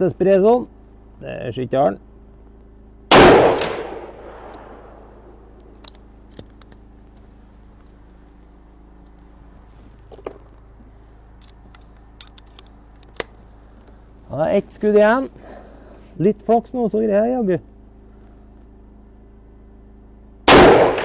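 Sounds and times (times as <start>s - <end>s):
generator humming: 0.0s - 21.0s
pistol shot: 3.1s - 5.3s, 20.5s - 21.0s.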